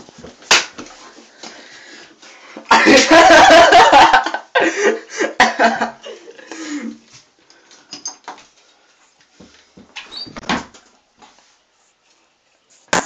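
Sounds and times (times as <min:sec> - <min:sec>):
handling and scuffling noise: 0:00.0 - 0:02.7, 0:07.0 - 0:12.9.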